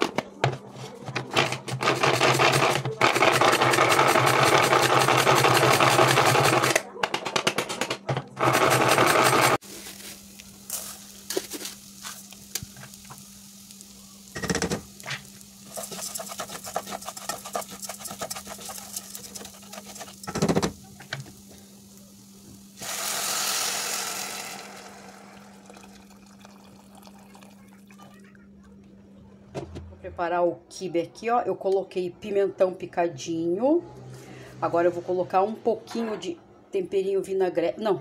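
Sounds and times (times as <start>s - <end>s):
manual food chopper whirring: 1.2s - 6.8s, 8.4s - 9.6s, 15.7s - 20.8s
spatula scraping rice in pot: 15.6s - 20.4s
hot water pouring hiss: 21.2s - 27.2s.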